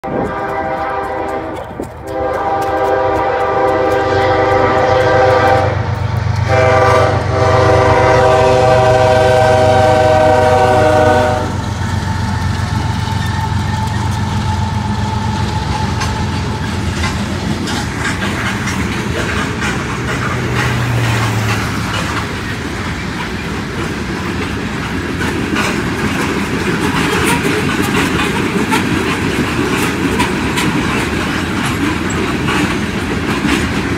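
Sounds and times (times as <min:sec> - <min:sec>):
locomotive air horn blasts: 0:00.0 - 0:11.7
diesel engines rumbling: 0:00.0 - 0:33.9
freight cars clattering on rails: 0:00.0 - 0:33.9.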